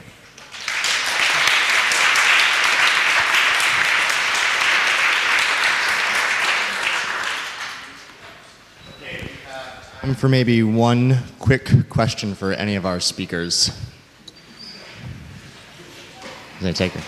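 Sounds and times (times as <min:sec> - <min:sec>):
audience applauding: 0:00.4 - 0:08.2.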